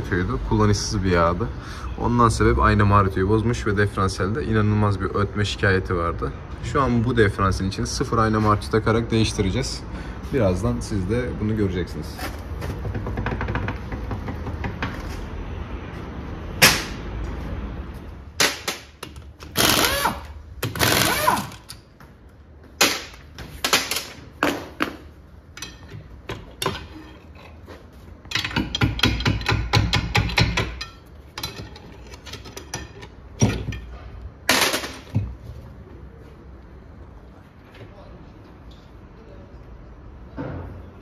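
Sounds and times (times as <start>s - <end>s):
metal tools clanking: 25.5s - 35.2s.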